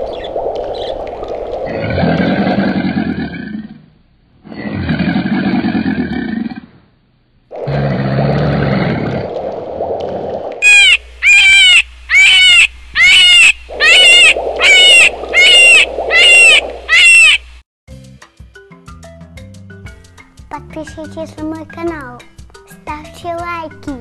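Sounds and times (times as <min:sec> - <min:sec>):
short animal calls: 0:10.6 - 0:17.4.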